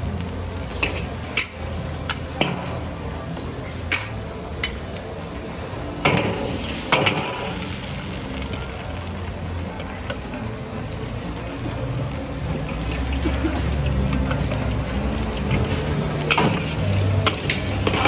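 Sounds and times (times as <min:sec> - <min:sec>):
utensils clinking on a wok: 0:00.6 - 0:05.1, 0:06.0 - 0:08.5, 0:12.6 - 0:18.0.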